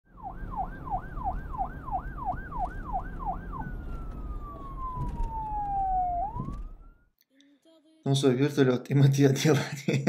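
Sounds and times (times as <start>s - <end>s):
siren wailing: 0.1s - 7.1s.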